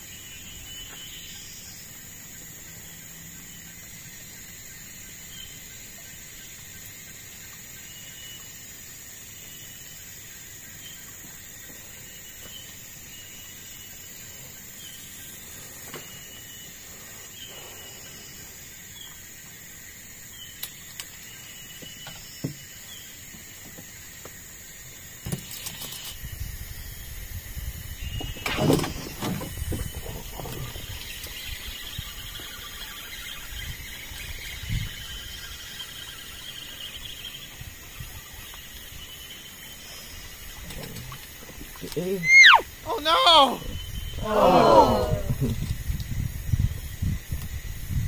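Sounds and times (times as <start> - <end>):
high-pitched insect drone: 0.0 - 44.2
gusty low rumbling: 45.0 - 48.0.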